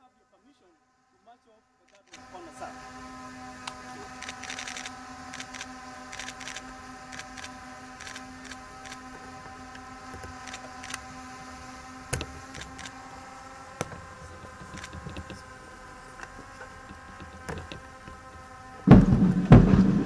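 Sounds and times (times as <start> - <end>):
faint steady hum: 0.0 - 20.0
sharp clicks: 1.9 - 2.4, 3.6 - 11.1, 12.1 - 13.0, 13.8 - 18.5
band drums: 18.9 - 20.0.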